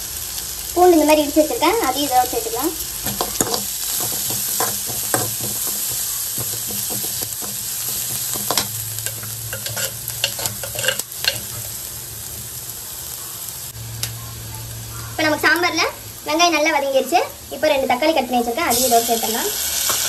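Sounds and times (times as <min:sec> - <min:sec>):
onion and garlic sizzling in oil: 0:00.0 - 0:20.0
metal spoon scraping a pan: 0:03.0 - 0:11.9.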